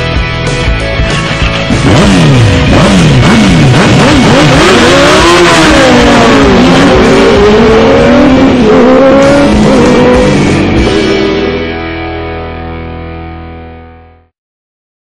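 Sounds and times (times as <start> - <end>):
rock music: 0.0 - 14.3
motorcycle engines revving: 1.6 - 11.6.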